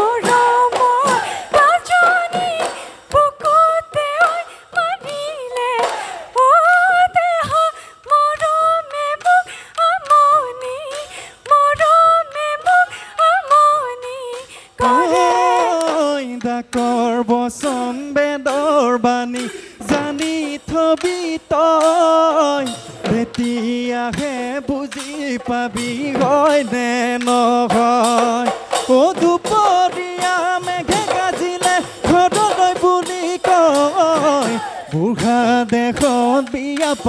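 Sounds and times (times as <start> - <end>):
woman singing: 0.0 - 22.1, 29.0 - 37.0
drum strokes: 14.3 - 37.0
man singing: 14.8 - 37.0.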